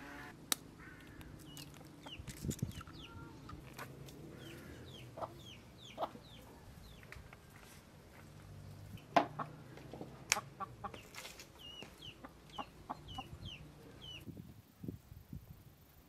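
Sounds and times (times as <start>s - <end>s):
chickens clucking: 1.4s - 7.6s, 8.9s - 14.3s.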